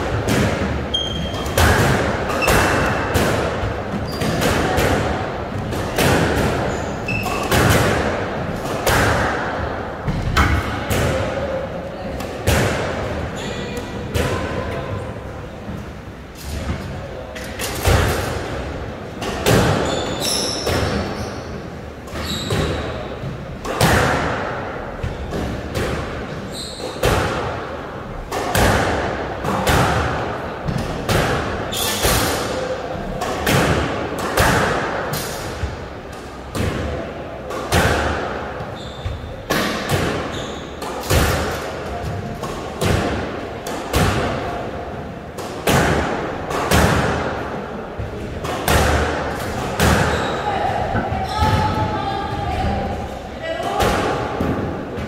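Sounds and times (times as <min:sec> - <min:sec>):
squash ball hits: 0:00.0 - 0:11.6, 0:12.2 - 0:14.7, 0:17.6 - 0:52.8, 0:53.6 - 0:55.0
shoes squeaking on wooden floor: 0:00.9 - 0:01.5, 0:22.1 - 0:22.9, 0:38.7 - 0:39.3.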